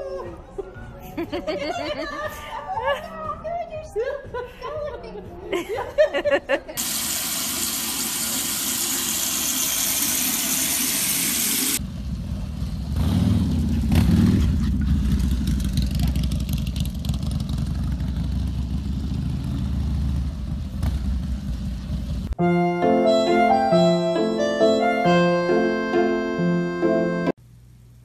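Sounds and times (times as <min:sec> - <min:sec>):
motorcycle engine revving: 0:11.8 - 0:22.4.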